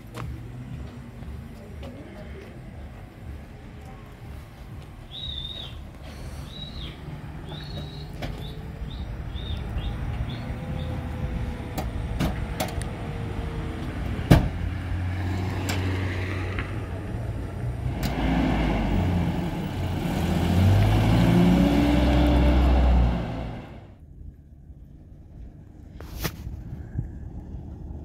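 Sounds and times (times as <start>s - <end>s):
truck engine revving: 6.5s - 24.0s
car door slamming: 14.2s - 14.6s.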